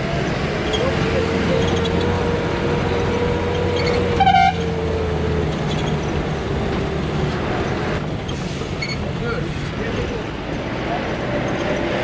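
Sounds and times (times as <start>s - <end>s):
bus engine running: 0.0s - 12.0s
vehicle horn blast: 4.2s - 4.6s.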